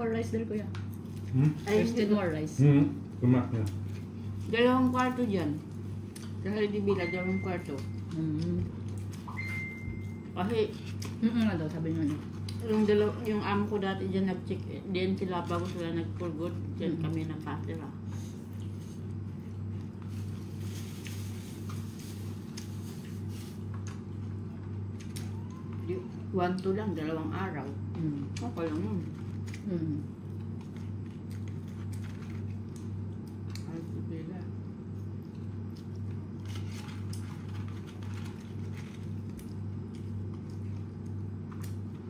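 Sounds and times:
rustling of fries being eaten: 0:17.0 - 0:25.8, 0:28.1 - 0:33.8, 0:34.9 - 0:42.0
chewing: 0:28.2 - 0:33.7.

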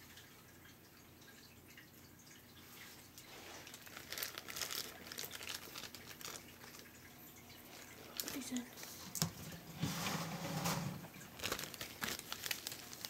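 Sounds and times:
crinkling crackling rustle: 0:02.8 - 0:13.0.

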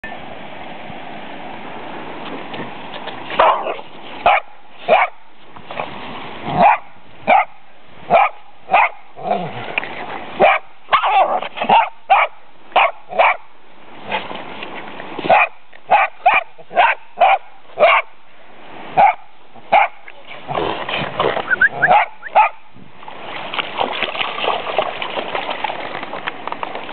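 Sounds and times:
dogs barking: 0:03.4 - 0:05.2, 0:06.6 - 0:09.0, 0:10.4 - 0:13.4, 0:15.3 - 0:18.1, 0:19.0 - 0:20.0, 0:21.5 - 0:22.6.

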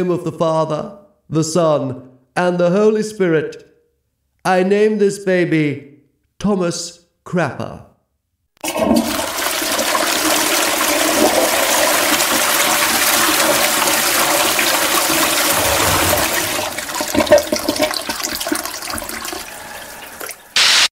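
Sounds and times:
toilet flushing: 0:08.6 - 0:20.8.

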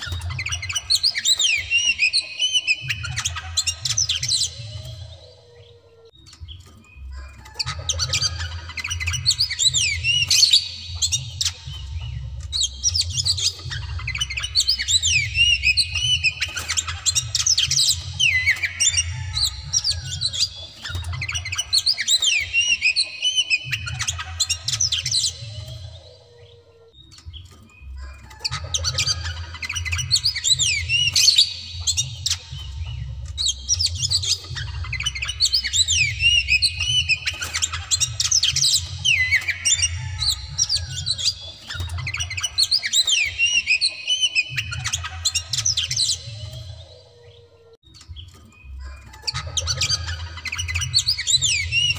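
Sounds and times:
bird singing varied whistles: 0:00.0 - 0:06.6.

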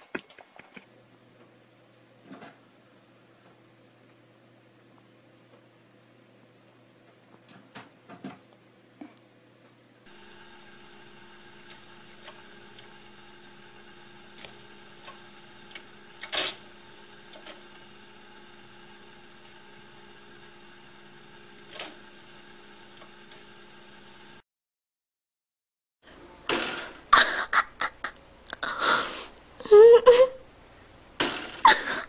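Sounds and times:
disc drive whirring: 0:00.8 - 0:24.4.

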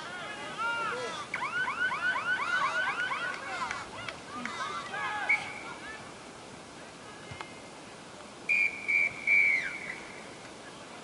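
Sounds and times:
referee's whistle blasts: 0:08.5 - 0:10.0.

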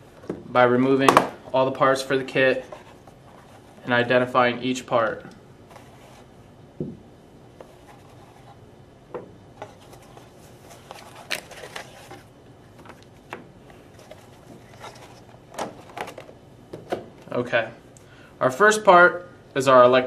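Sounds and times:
plastic packaging handling: 0:09.6 - 0:17.0.

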